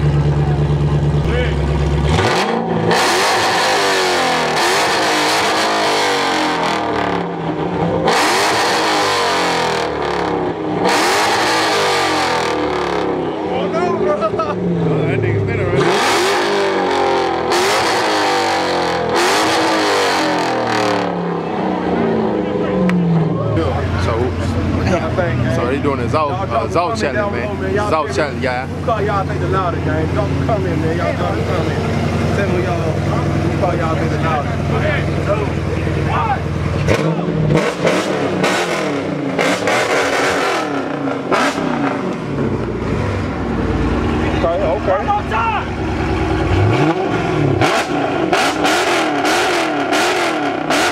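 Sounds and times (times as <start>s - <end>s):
car engine revving: 0.0s - 50.9s.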